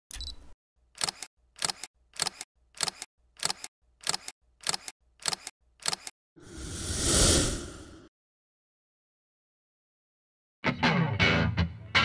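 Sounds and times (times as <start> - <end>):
camera shutter clicks: 1.0 - 6.1.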